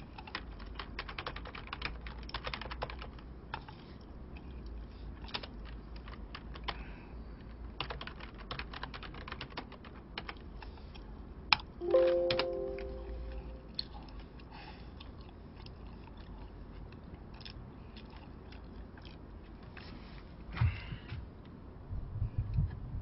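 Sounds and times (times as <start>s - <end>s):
faint steady low hum: 0.0s - 23.0s
keyboard typing clicks: 0.2s - 3.7s, 11.5s - 13.7s.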